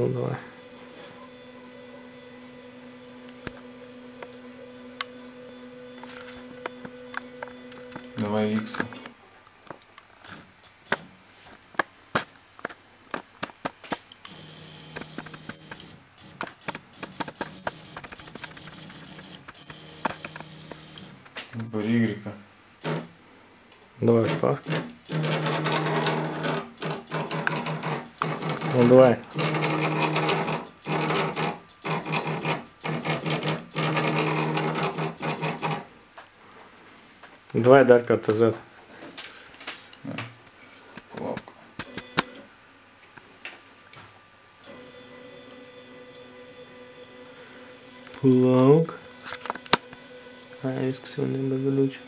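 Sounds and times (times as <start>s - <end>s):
stepper motor whine: 0.0s - 9.1s, 14.2s - 21.2s, 44.7s - 52.0s
stepper motor clicks: 5.9s - 9.2s, 10.2s - 11.1s, 14.1s - 21.7s, 41.3s - 42.4s.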